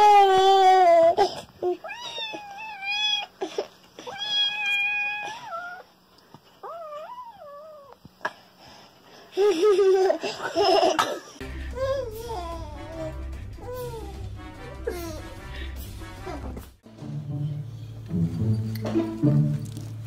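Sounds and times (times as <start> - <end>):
toddler crying: 0.0 - 5.8.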